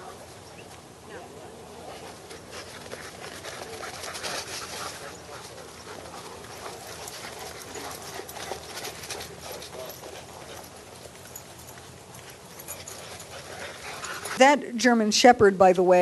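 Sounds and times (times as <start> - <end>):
dogs scuffling on dirt: 0.0 - 14.4
dog panting: 1.8 - 14.4.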